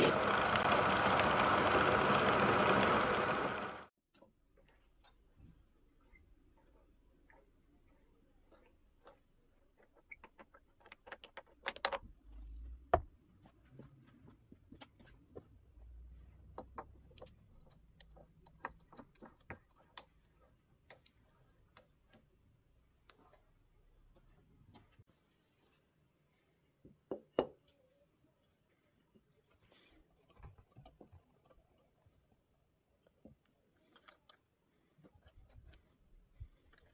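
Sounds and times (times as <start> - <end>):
wood scraping: 0.0 - 3.8.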